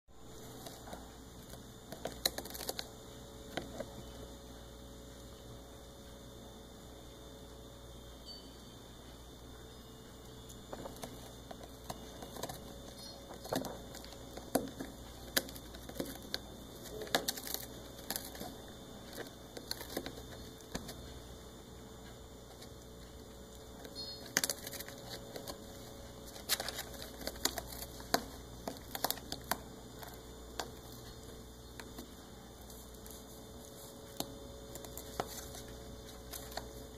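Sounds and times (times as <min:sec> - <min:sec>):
kitten gnawing cardboard: 0:00.3 - 0:04.7, 0:10.4 - 0:36.9.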